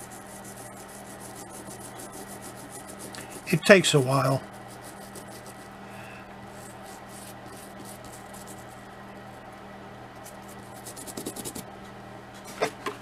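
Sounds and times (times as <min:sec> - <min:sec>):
toothbrush scrubbing plastic: 0:00.0 - 0:03.6, 0:04.2 - 0:05.7, 0:06.5 - 0:08.8, 0:10.2 - 0:11.6.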